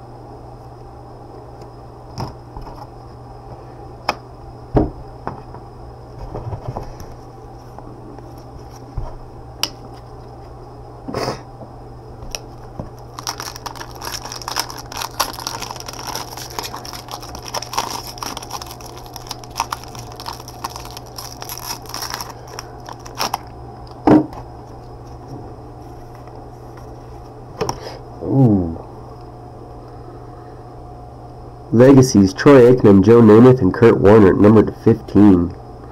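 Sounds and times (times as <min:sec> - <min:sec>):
low electrical hum: 0:00.0 - 0:35.9
wrapper crinkling and tearing: 0:13.0 - 0:23.5.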